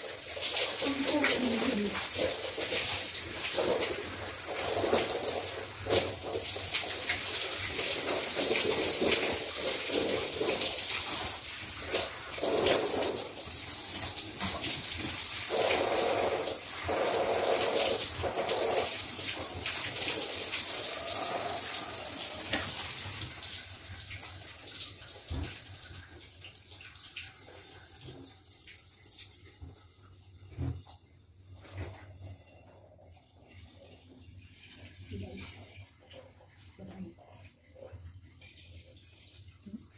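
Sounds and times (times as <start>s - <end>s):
shower spray splashing: 0.0s - 27.1s
water drips: 0.0s - 39.9s.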